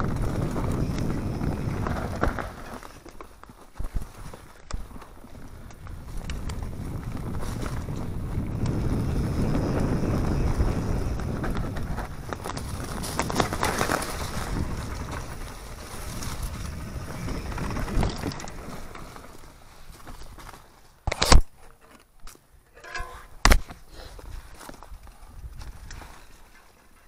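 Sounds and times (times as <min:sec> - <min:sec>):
wind on microphone: 0:00.0 - 0:02.8, 0:03.8 - 0:19.3
bike rattling over bumps: 0:00.0 - 0:21.2
bike tyres on dirt trail: 0:00.0 - 0:27.0.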